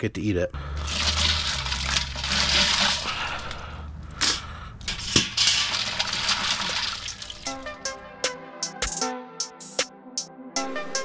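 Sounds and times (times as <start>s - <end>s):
ice crunching and water sloshing: 0.6s - 7.8s.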